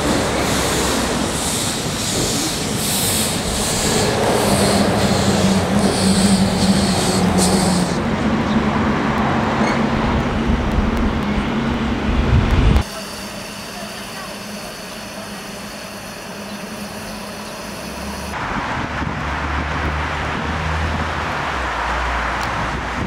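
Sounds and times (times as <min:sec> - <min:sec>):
steam hissing puffs: 0:00.0 - 0:08.0, 0:12.8 - 0:18.4
locomotive low rumble: 0:00.0 - 0:23.0.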